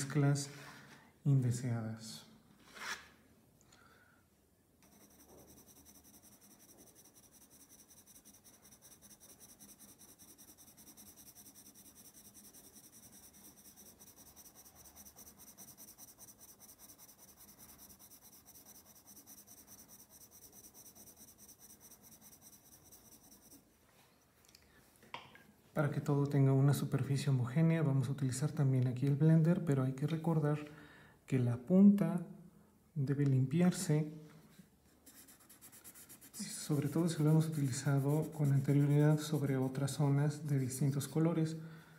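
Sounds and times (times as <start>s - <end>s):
pencil scratching on paper: 4.8s - 23.6s, 34.9s - 40.8s.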